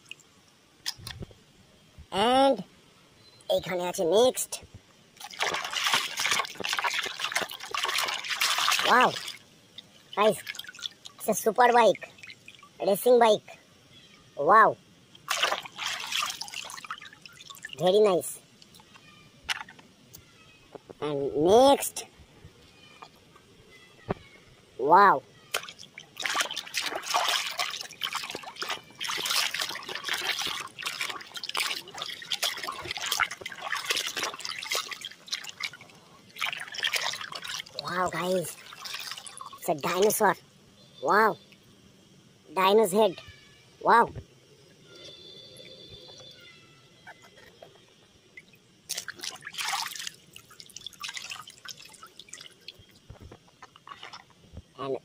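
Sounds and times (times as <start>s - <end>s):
water dripping: 0.0s - 1.4s, 5.2s - 12.8s, 15.1s - 20.9s, 25.4s - 40.2s, 48.0s - 54.6s
water splashing in plastic tub: 5.2s - 11.2s, 11.8s - 12.8s, 15.2s - 18.8s, 19.5s - 19.8s, 25.5s - 40.1s, 48.4s - 54.3s.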